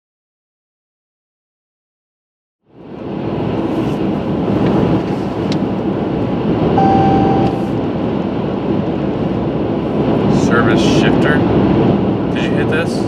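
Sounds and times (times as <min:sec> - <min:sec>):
car cabin road and engine noise: 0:02.7 - 0:13.0
short steady beep: 0:06.8 - 0:07.7.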